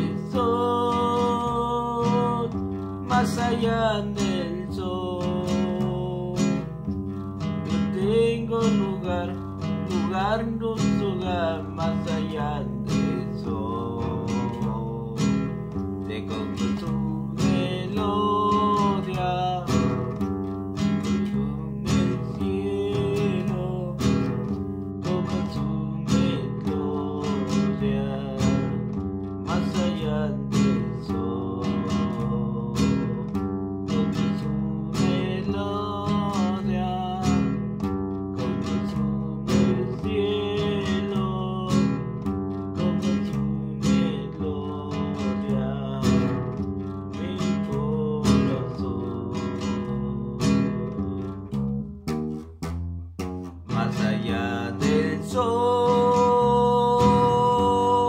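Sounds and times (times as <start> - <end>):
acoustic guitar strumming: 0.0 - 58.0.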